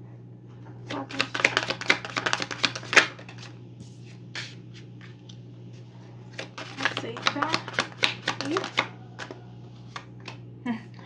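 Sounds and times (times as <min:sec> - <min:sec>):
card taps: 0:00.9 - 0:03.4, 0:06.4 - 0:10.4
cards riffling: 0:00.9 - 0:03.5, 0:06.3 - 0:10.4.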